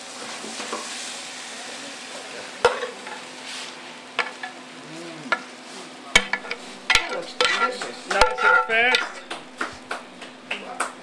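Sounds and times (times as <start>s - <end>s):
food sizzling in a pan: 0.0s - 11.0s
spoon scraping onto glass plate: 6.2s - 10.0s
metal spoon stirring: 6.2s - 10.5s.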